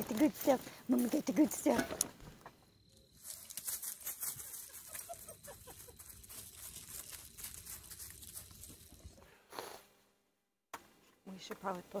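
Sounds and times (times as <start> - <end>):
dry leaves rustling and crunching: 3.1 - 9.2.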